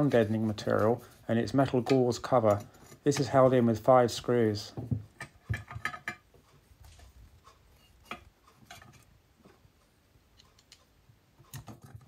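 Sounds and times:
metallic clicks and taps: 7.4s - 12.0s.

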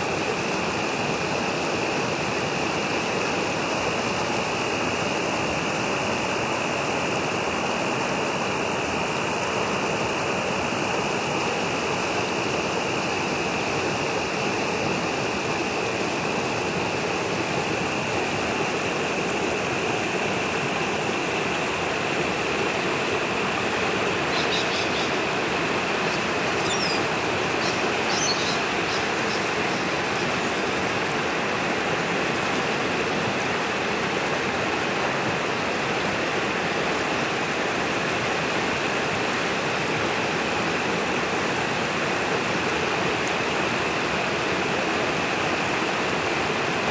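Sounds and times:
water rushing over rocks: 0.0s - 46.9s
faint high chirps: 27.6s - 29.0s.

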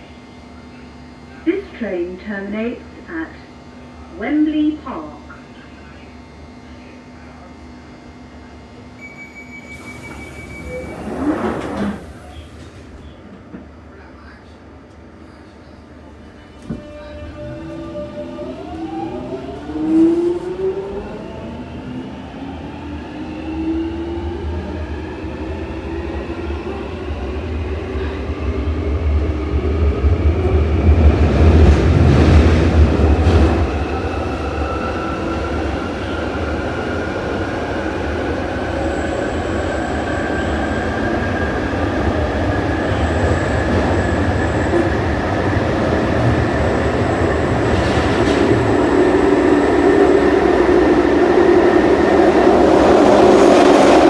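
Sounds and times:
train wheels rumbling on rails: 24.2s - 54.0s.

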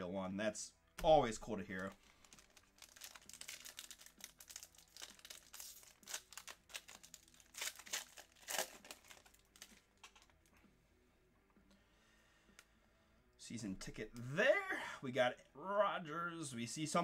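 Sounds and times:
foil wrapper tearing and crinkling: 1.7s - 10.3s.

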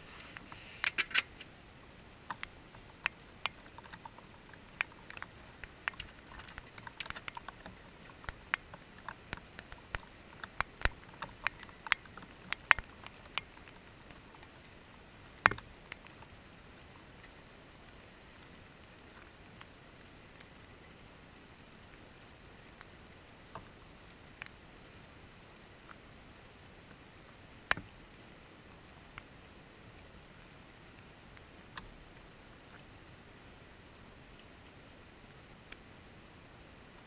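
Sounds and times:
faint steady hiss: 0.0s - 37.0s
raindrops tapping on window: 2.2s - 16.4s.

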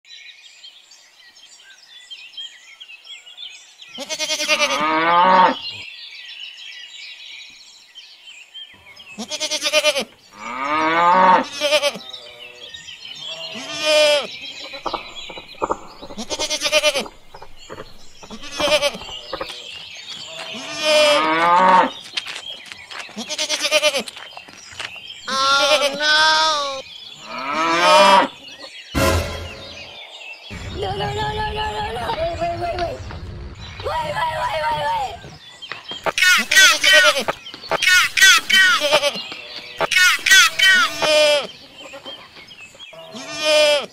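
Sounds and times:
birds chirping: 0.2s - 43.9s
sheep bleating: 4.0s - 5.6s, 9.2s - 15.0s, 16.1s - 17.2s, 18.2s - 19.7s, 20.3s - 21.9s, 23.2s - 24.1s, 25.3s - 28.3s, 36.2s - 42.1s, 43.0s - 43.9s
cow mooing: 4.5s - 5.6s, 27.2s - 28.3s.

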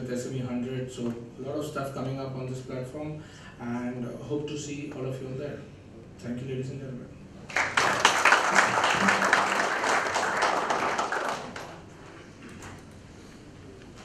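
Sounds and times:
audience applauding: 7.5s - 12.0s.

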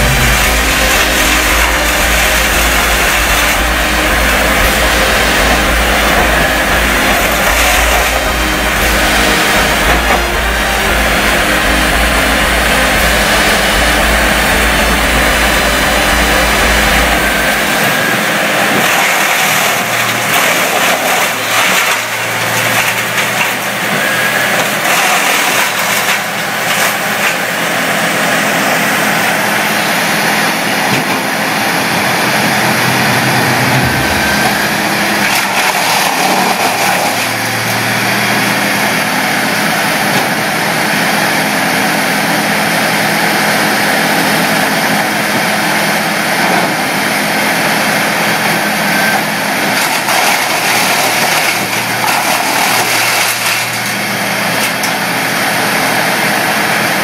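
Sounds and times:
deep low rumble: 0.0s - 18.2s, 32.0s - 36.4s
wood chipper running: 0.0s - 57.0s
wood crackling through chipper: 0.0s - 57.0s.

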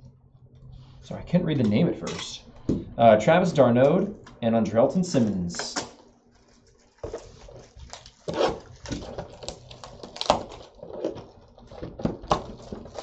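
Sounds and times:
plastic wrap crinkling: 5.2s - 13.0s.

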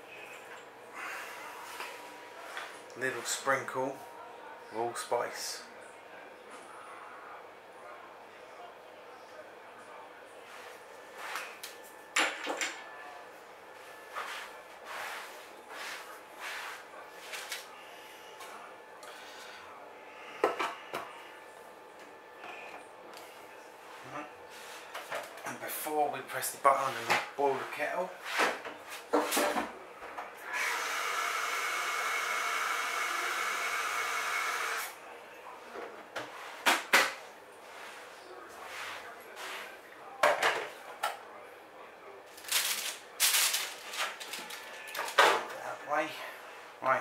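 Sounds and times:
soft scraping: 13.8s - 17.6s, 37.6s - 39.8s.

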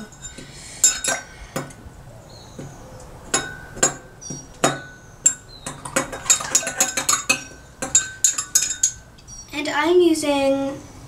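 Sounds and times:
metal spoon clinking in cup: 4.6s - 9.0s.

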